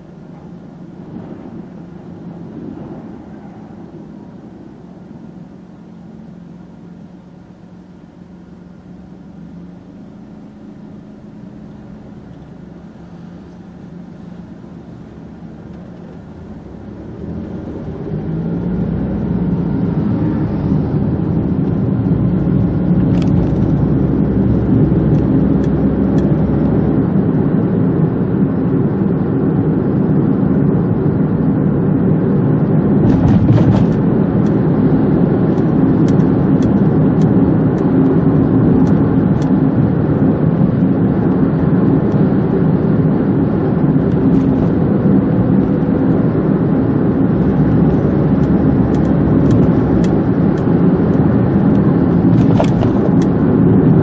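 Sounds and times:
road noise: 0.0 - 54.0
car accelerating: 8.8 - 30.0, 32.4 - 54.0.

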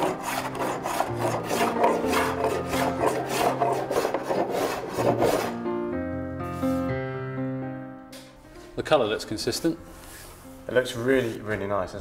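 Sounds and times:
hand tool rasping on wood: 0.0 - 5.6
piano and guitar music: 0.0 - 12.0.

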